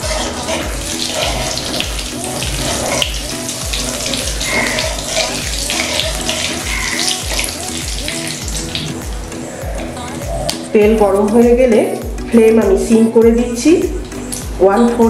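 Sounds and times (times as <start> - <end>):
oil sizzling in a wok: 0.0 - 9.5
background music with beat: 0.0 - 15.0.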